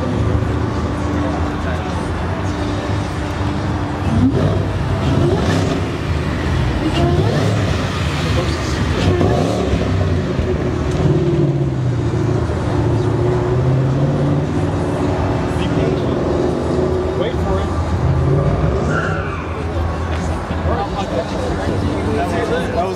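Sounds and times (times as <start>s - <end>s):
sports car engine revving past: 4.0s - 15.2s.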